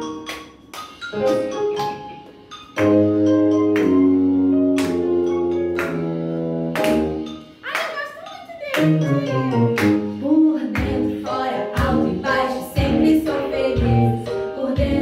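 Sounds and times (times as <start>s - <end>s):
percussion hits: 0.0s - 15.0s
sustained chords with bass: 2.8s - 7.4s, 8.8s - 15.0s.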